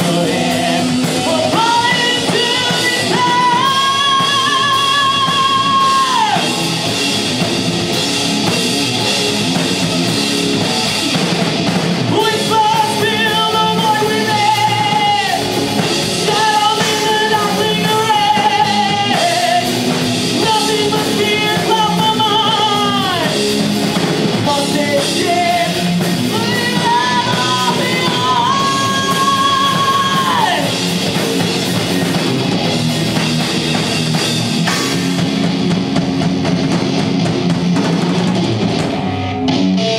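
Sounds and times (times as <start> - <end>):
singer holding long notes: 0.0 - 7.0, 12.1 - 23.7, 24.3 - 30.9
live metal band playing: 0.0 - 39.9.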